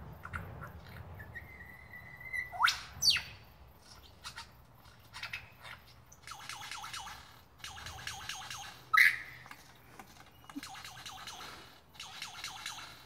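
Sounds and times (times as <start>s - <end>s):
lyrebird singing: 0.0s - 13.0s.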